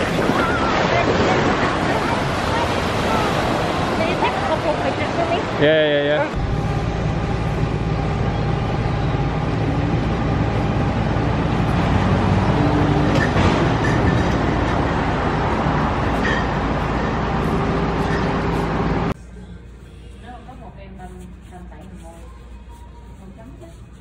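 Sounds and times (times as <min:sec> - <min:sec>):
passing vehicles: 0:00.0 - 0:19.2
constant low hum: 0:06.2 - 0:24.0.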